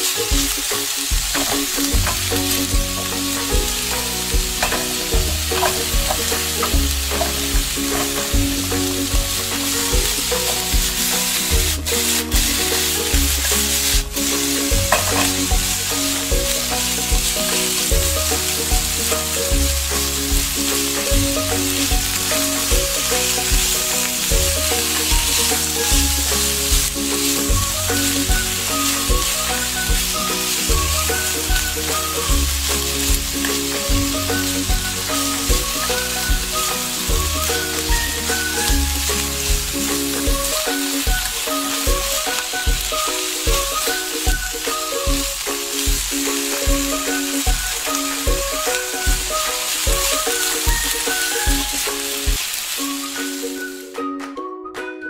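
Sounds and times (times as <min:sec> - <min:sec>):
wooden spatula stirring: 0:00.0 - 0:44.3
background music with low beat: 0:00.0 - 0:52.4
chicken sizzling in hot oil: 0:00.0 - 0:53.9.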